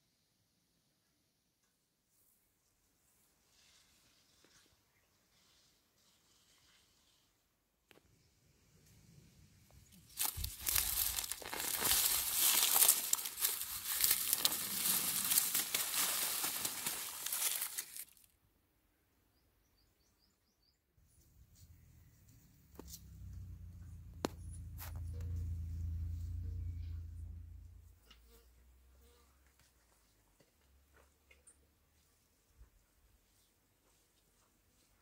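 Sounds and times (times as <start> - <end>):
onion leaves and roots rustling: 9.8 - 18.3.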